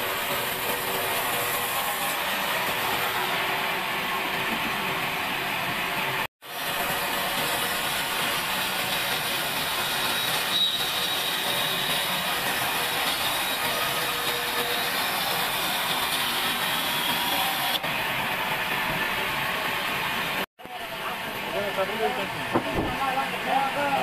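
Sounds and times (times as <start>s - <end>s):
band saw cutting wood: 0.0s - 3.6s, 6.4s - 17.9s.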